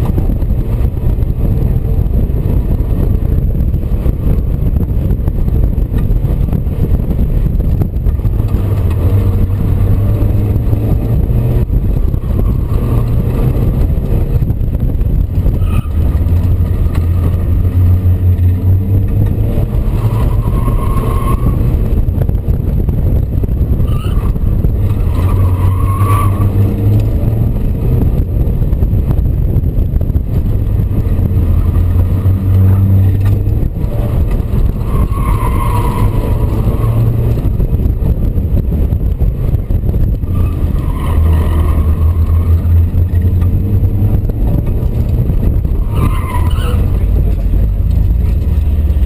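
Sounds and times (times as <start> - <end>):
car engine revving: 0.0 - 49.0
wind and road noise: 0.0 - 49.0
tyres squealing: 45.8 - 47.2.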